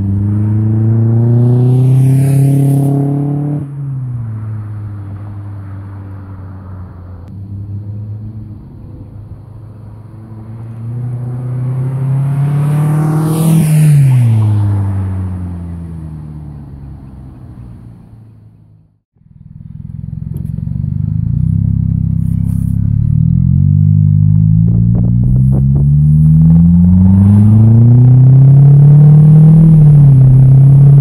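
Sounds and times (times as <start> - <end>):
car engine driving past: 0.0 - 18.7
tyre and wind noise: 24.5 - 26.8.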